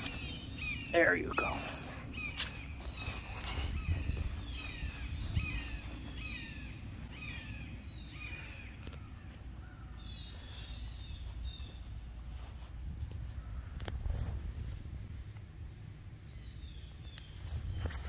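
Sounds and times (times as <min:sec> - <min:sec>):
higher bird calls: 0:00.0 - 0:11.9
birds chirping: 0:00.0 - 0:14.8, 0:15.7 - 0:18.0
low steady rumble: 0:00.0 - 0:18.0.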